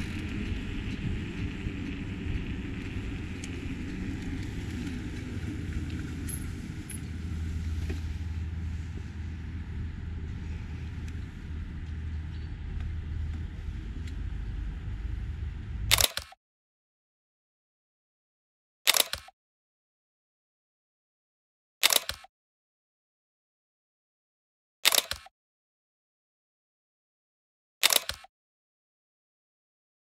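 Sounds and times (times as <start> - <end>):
wind and rolling rumble: 0.0 - 16.0.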